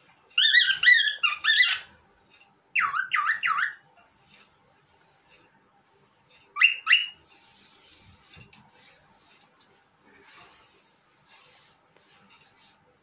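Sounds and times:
cockatiel whistling: 2.8 - 3.8, 6.6 - 7.2.

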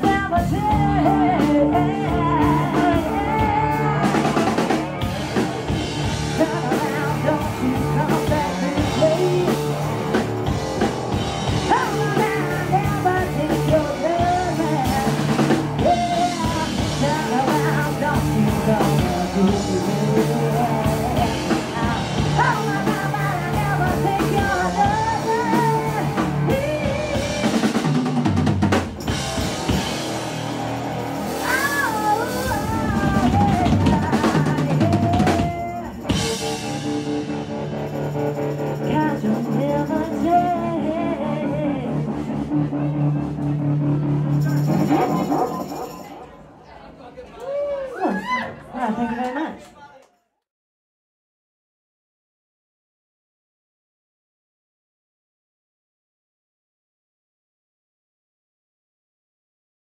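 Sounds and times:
woman singing: 0.0 - 4.7, 6.3 - 9.8, 11.6 - 27.8, 31.4 - 36.2, 38.8 - 42.2
rock band playing: 0.0 - 46.4.

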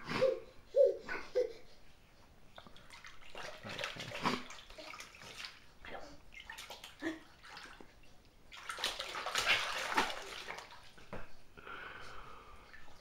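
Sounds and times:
water splashing in baby bath: 2.6 - 11.1.

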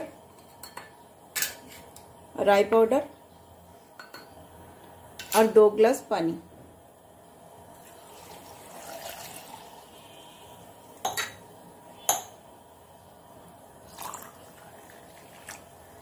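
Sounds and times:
water pouring into jar: 7.8 - 10.0, 13.9 - 15.8.

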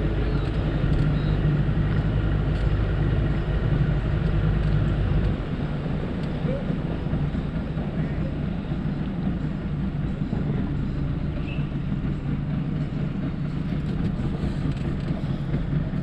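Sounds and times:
small boat motor running: 0.0 - 11.6.

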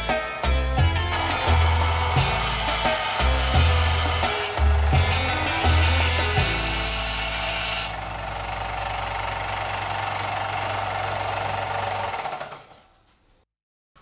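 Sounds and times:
brass grinding on sander belt: 0.1 - 8.1
belt sander motor hum: 1.1 - 12.8.

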